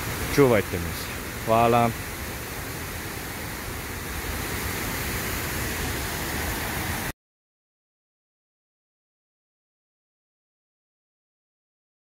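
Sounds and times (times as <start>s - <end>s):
stream and waterfall rushing: 0.0s - 7.2s.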